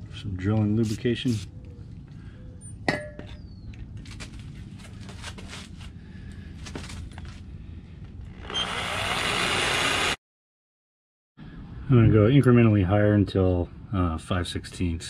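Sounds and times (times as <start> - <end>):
power drill cutting into metal: 8.4 - 10.2.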